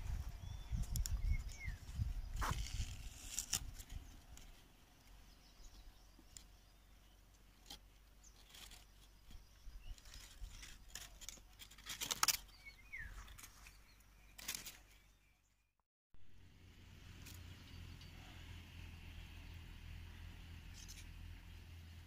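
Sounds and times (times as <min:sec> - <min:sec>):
dry leaves and twigs rustling: 0:00.0 - 0:15.3.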